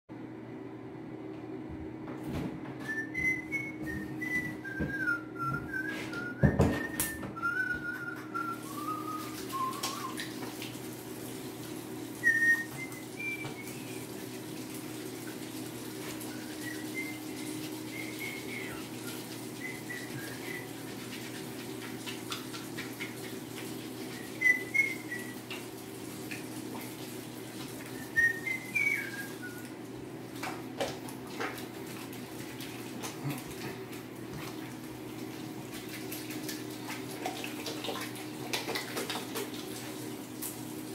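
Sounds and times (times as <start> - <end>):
tap water running at sink: 2.3 - 40.9
person whistling a tune: 2.8 - 10.3, 12.2 - 14.1, 16.3 - 20.7, 24.2 - 25.4, 27.9 - 29.7.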